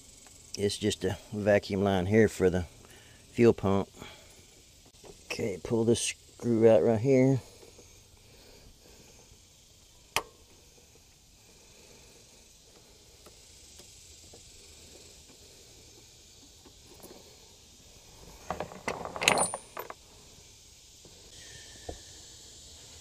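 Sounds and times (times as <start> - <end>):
metal tools clinking and rattling: 18.4 - 20.0.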